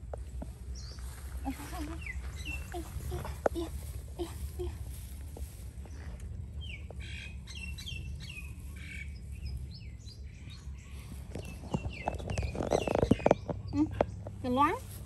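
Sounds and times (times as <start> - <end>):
bird chirping: 0.7 - 3.3, 5.8 - 14.8.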